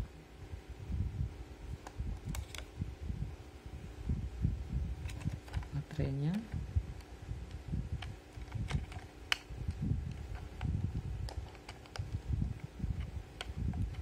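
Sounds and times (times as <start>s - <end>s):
clicks and rubbing on plastic case: 5.0s - 6.6s, 8.0s - 14.0s.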